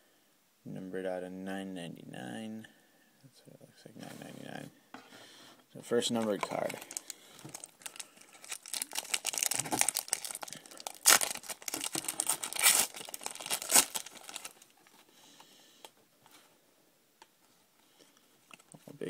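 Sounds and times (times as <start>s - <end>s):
foil wrapper crinkling and ripping: 6.5s - 14.9s.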